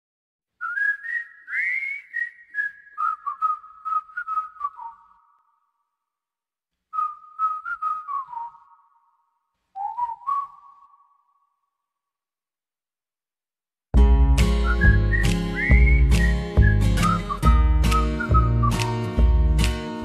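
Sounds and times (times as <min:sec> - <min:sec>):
person whistling slow melody: 0:00.6 - 0:05.5, 0:06.9 - 0:09.2, 0:09.8 - 0:11.6, 0:14.4 - 0:19.3.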